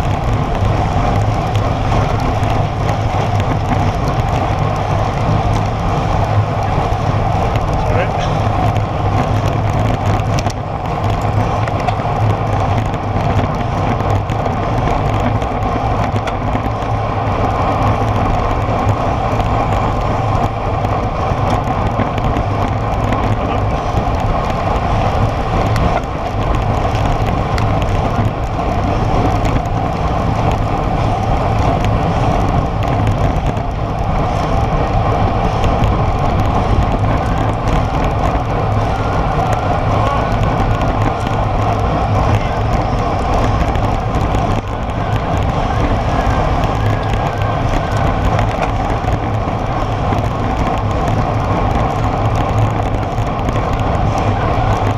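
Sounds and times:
tyre and road rumble: 0.0 - 54.9
wind rushing over camera: 0.0 - 54.9.

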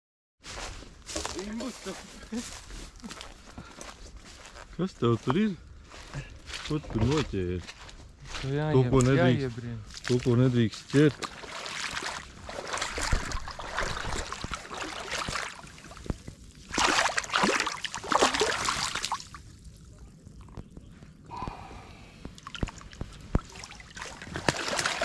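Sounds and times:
river water sloshing and splashing: 10.9 - 19.8, 22.4 - 25.0.

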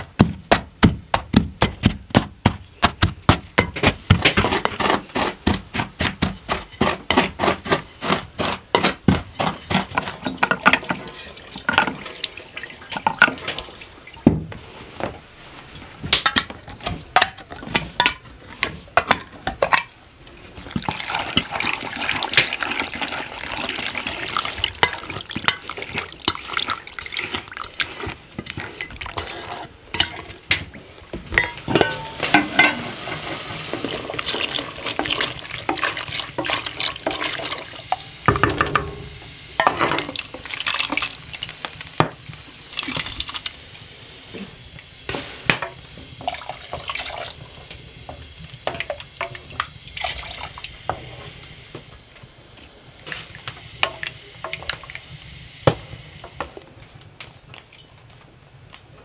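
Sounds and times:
water running: 20.6 - 29.5, 31.4 - 42.0, 45.7 - 51.9
dishes clinking and knocking: 31.3 - 37.5, 38.3 - 40.2.

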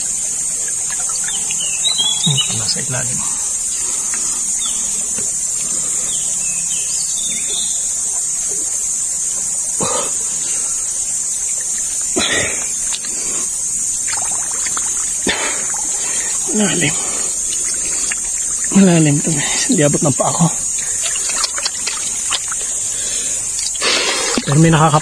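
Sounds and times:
river water splashing: 0.0 - 6.2, 11.4 - 25.0
high-pitched insect buzz: 0.0 - 25.0.

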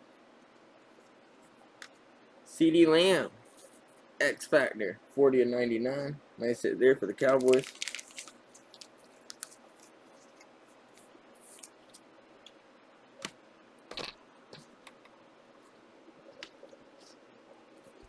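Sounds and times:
handling cards and wrappers: 7.2 - 12.1.

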